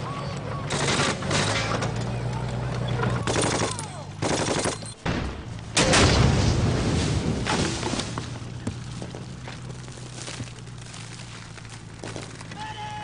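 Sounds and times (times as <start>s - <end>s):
gunfire bursts: 0.7s - 1.6s, 3.2s - 5.2s
loud explosion blast: 5.1s - 7.6s.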